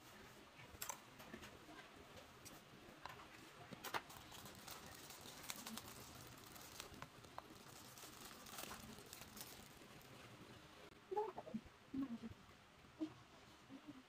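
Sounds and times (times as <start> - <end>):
plastic bag crinkling: 3.8 - 10.5.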